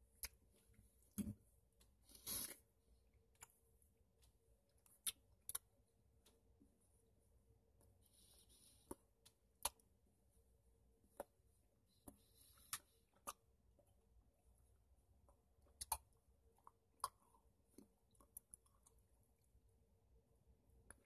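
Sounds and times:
wet chewing clicks: 15.6 - 19.1.

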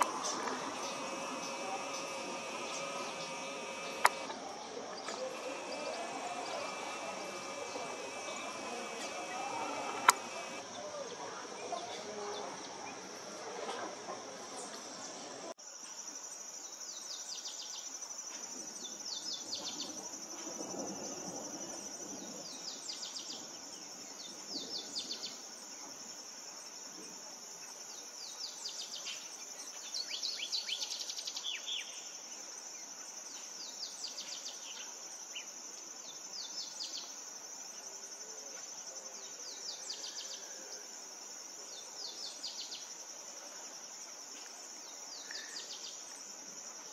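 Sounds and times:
high-pitched insect drone: 0.0 - 10.6.

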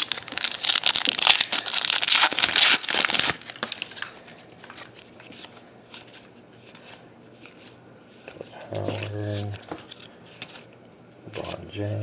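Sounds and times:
card pack wrapper crinkling and tearing: 0.0 - 6.2.

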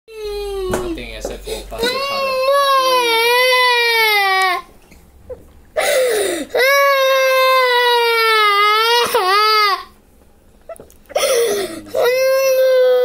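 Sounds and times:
young child crying: 0.1 - 1.0, 1.8 - 4.7, 11.2 - 13.0
child gasping: 5.8 - 6.6, 11.1 - 12.1.

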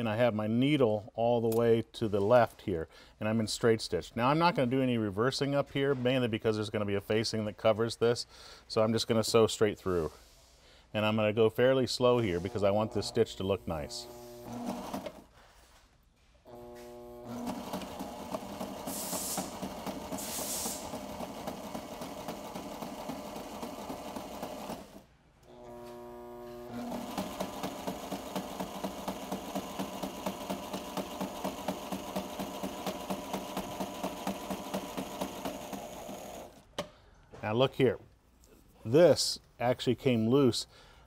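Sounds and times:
sewing machine clattering: 17.3 - 25.0, 26.8 - 36.6.

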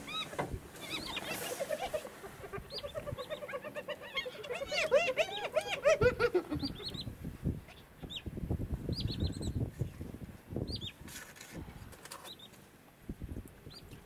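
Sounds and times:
small birds chirping: 0.0 - 5.8, 6.5 - 8.3, 8.9 - 9.7, 10.6 - 11.0, 12.1 - 12.6.

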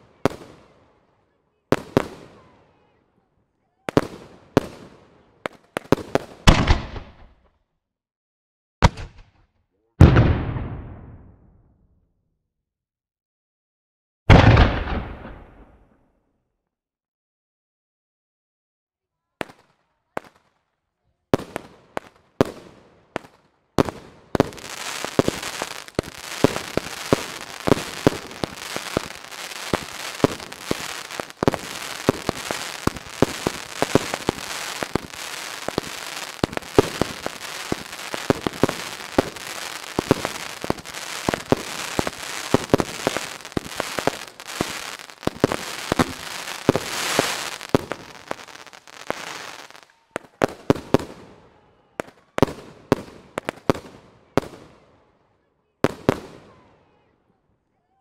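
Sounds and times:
fireworks bangs and crackling: 0.0 - 3.0, 3.8 - 7.4, 8.8 - 11.6, 14.3 - 16.0, 21.3 - 55.1, 55.8 - 57.1.

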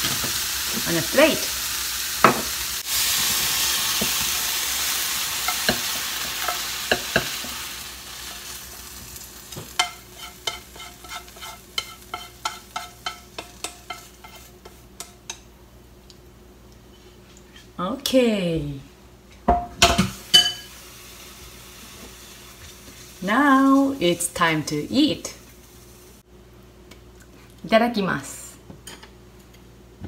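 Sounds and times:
food sizzling in frying pan: 0.0 - 15.3, 19.8 - 26.3.

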